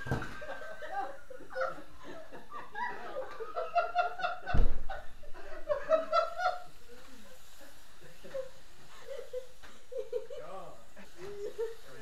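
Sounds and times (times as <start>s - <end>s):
people laughing: 0.0s - 12.0s
loud thump: 4.4s - 5.3s.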